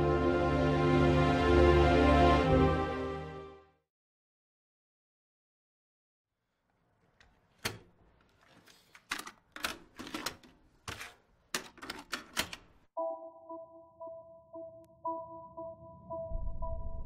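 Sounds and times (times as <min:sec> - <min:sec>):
tape clacking into recorder: 0:07.2 - 0:12.8
steady electronic beep: 0:13.0 - 0:17.0.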